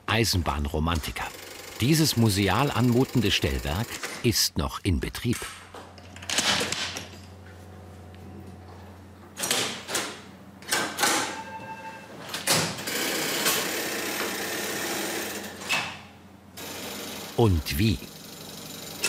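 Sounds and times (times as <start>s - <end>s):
signal levers clunking and clicking: 8.7s - 13.7s
short ringing tone: 11.3s - 12.2s.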